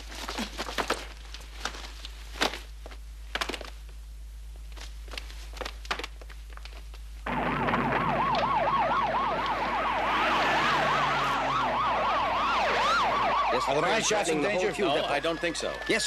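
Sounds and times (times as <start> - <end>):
yelping emergency sirens: 7.3 - 16.0.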